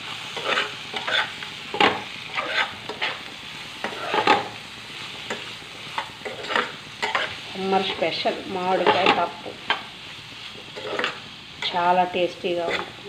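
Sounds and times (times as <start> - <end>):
frying sizzle: 0.0 - 13.0
spatula scraping a frying pan: 0.2 - 8.1, 8.7 - 11.8, 12.5 - 13.0.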